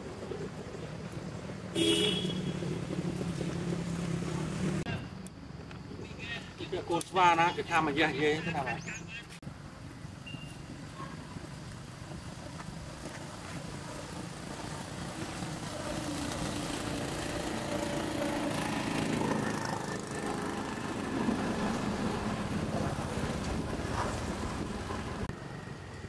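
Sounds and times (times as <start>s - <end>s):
motor engine running: 0.2s - 4.9s, 14.1s - 25.3s.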